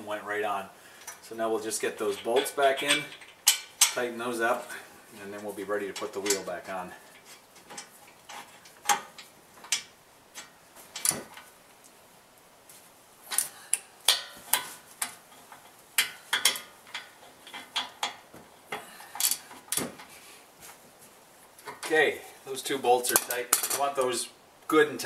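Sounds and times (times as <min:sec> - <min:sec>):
wrench clicking on metal bolts: 0:02.2 - 0:04.0.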